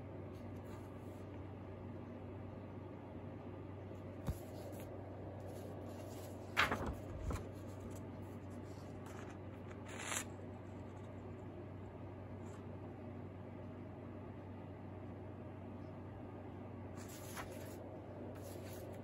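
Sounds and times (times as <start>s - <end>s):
faint low hum: 0.0s - 19.0s
paper rustling and clicking: 5.5s - 8.1s, 17.0s - 17.8s.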